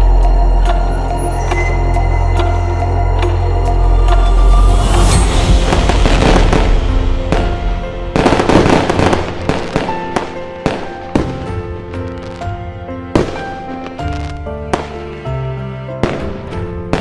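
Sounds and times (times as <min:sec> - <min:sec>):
festive background music: 0:00.0 - 0:17.0
fireworks bangs and crackle: 0:05.0 - 0:12.5, 0:13.1 - 0:15.0, 0:16.0 - 0:17.0.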